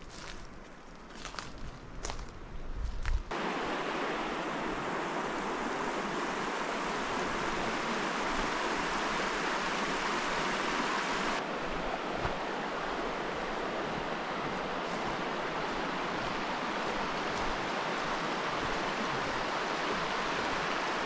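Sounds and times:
footsteps on forest litter: 0.0s - 3.3s
river running over stones: 3.3s - 21.0s.

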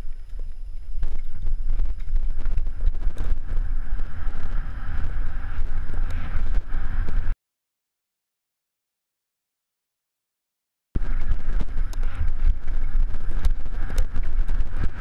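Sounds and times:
bike rattling over bumps: 0.0s - 7.3s, 11.0s - 15.0s
wind buffeting microphone: 0.0s - 7.4s, 11.0s - 15.0s.

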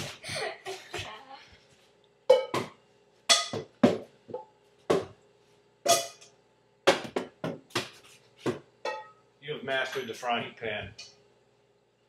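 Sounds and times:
ball clanking off frying pans: 2.3s - 5.1s, 5.8s - 7.9s, 8.8s - 9.2s.

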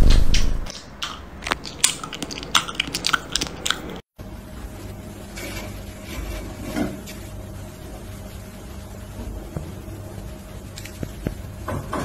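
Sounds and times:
steady background hum: 0.0s - 12.0s
cat chewing raw meat: 1.4s - 4.0s.

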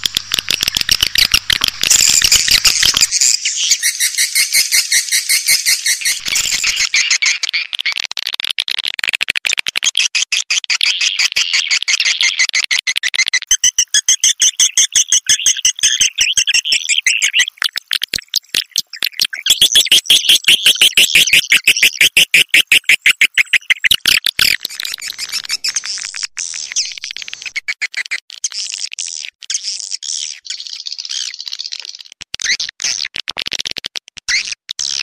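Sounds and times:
high twittering: 0.0s - 7.5s
rapid chirping clicks: 0.0s - 35.0s.

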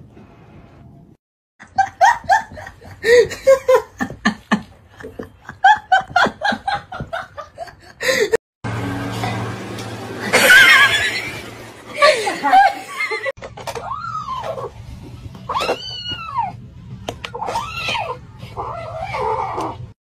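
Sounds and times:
person laughing hard: 1.6s - 8.4s, 10.2s - 13.3s.

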